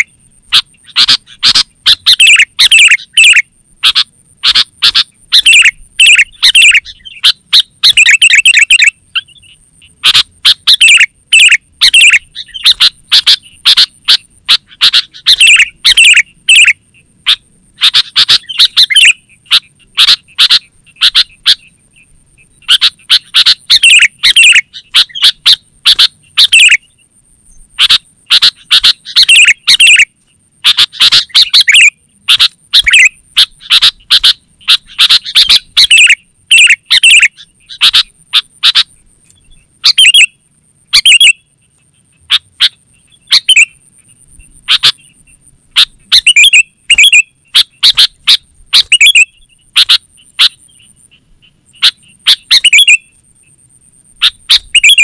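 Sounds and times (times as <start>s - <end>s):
bird singing chattering phrases: 0.0s - 30.0s, 30.6s - 40.3s, 41.0s - 53.2s, 54.2s - 55.0s.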